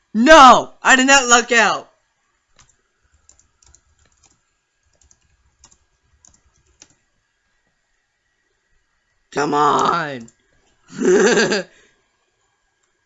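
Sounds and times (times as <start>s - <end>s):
faint keyboard typing: 2.5s - 7.2s.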